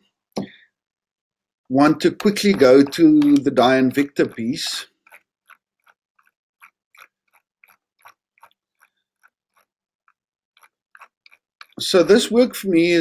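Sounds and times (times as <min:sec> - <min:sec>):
computer mouse clicking: 0:02.2 - 0:11.8.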